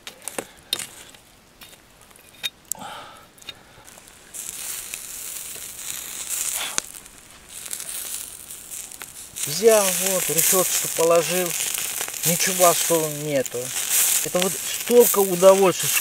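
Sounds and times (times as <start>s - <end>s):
light clicks and crackles: 0.0s - 2.8s, 3.4s - 16.0s
meat sizzling on grill: 3.8s - 16.0s.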